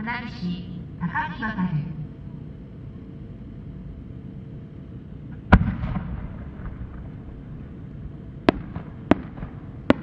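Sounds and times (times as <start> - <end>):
low outdoor rumble: 0.0 - 10.0
firework boom: 5.5 - 7.2
faint firework crackles: 8.4 - 10.0.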